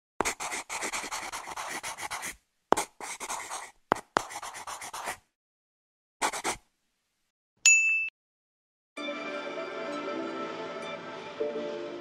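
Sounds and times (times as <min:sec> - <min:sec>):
pencil scratching on paper: 0:00.2 - 0:05.2, 0:06.2 - 0:06.6
pencil tip tap: 0:01.5 - 0:05.2.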